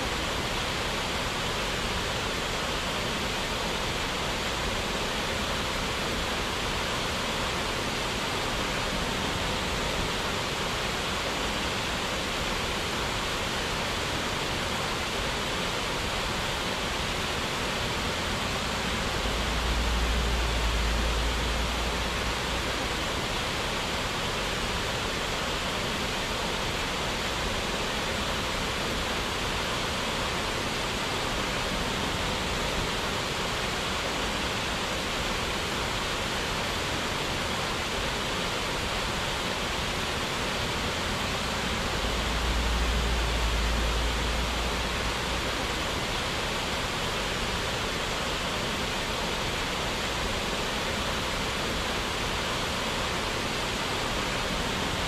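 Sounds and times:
water falling over waterfall: 0.0s - 55.0s
low rumble: 18.8s - 23.1s, 41.3s - 45.6s.

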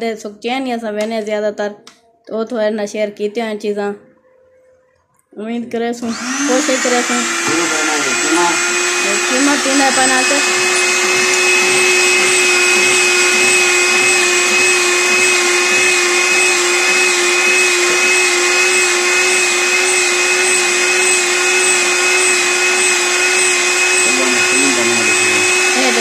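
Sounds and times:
electric meat grinder whining: 6.0s - 26.0s.

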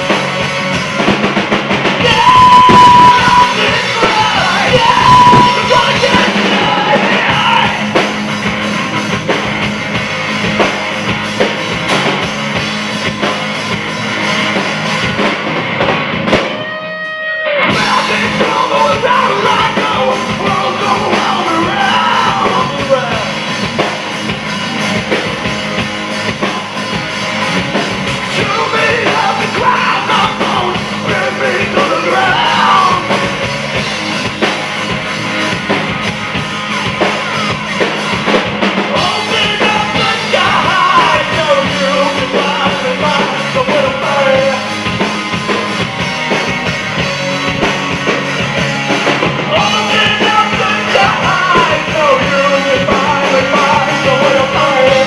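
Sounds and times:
rock band playing live: 0.0s - 55.0s
man singing: 2.0s - 8.0s, 17.7s - 23.5s, 28.3s - 33.4s, 38.9s - 45.1s, 49.4s - 55.0s.

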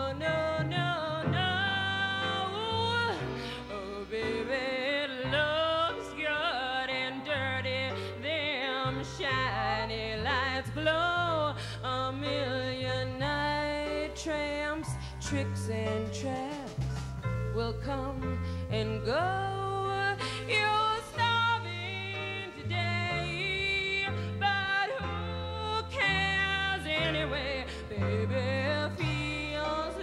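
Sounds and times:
woman singing with vibrato: 0.0s - 30.0s
live band accompaniment: 14.1s - 18.1s.

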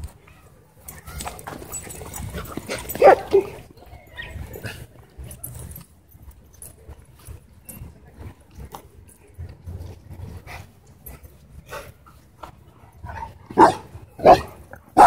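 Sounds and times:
dogs playing: 0.2s - 15.0s
dog barking: 3.0s - 3.6s, 13.6s - 15.0s.

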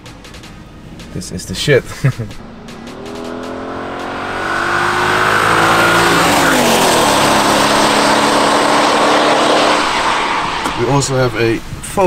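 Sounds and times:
car engine accelerating: 0.0s - 12.0s.

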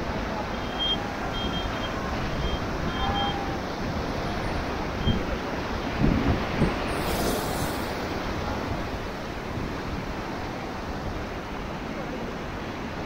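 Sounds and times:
rushing whitewater: 0.0s - 13.0s
wind buffeting microphone: 1.0s - 11.4s.

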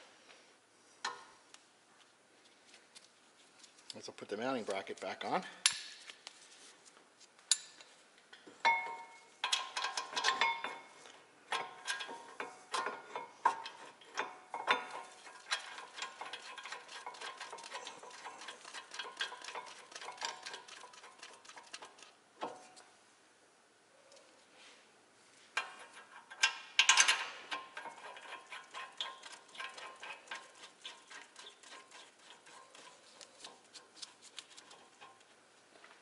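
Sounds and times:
metal clinks and knocks: 8.6s - 22.6s, 25.6s - 33.7s
quick metallic ticking: 26.8s - 33.7s.

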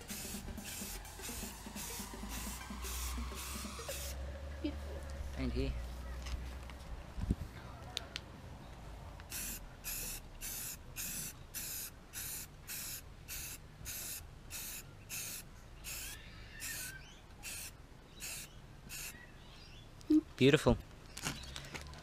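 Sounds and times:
spray paint hissing bursts: 0.0s - 4.2s, 9.3s - 19.2s.

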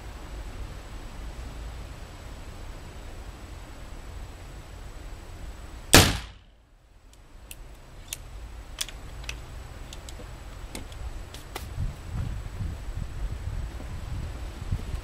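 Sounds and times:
revolver gunshot: 5.9s - 6.5s
revolver handling clicks and knocks: 7.5s - 11.0s.

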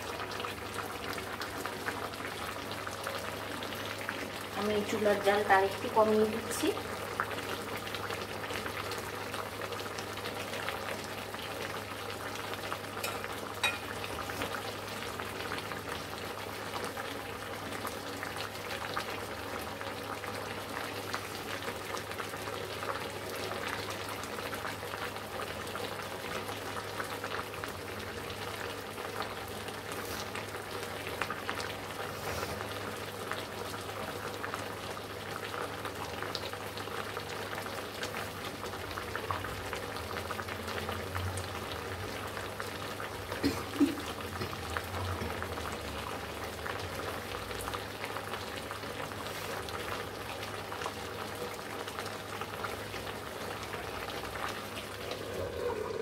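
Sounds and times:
vegetables sizzling in oil: 0.0s - 56.0s.

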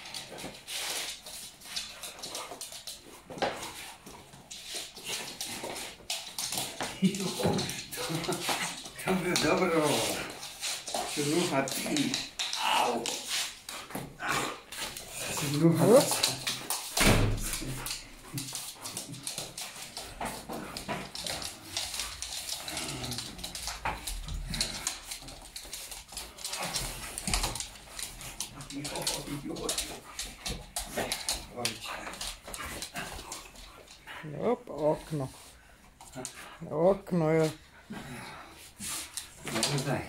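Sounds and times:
dog snuffling and scuffling: 0.0s - 36.5s.

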